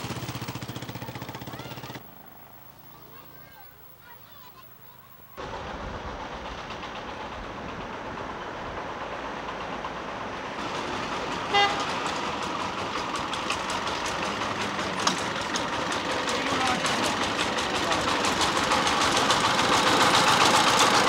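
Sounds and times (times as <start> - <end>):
diesel engine chugging: 0.0 - 21.0
horn toot: 11.5 - 11.9.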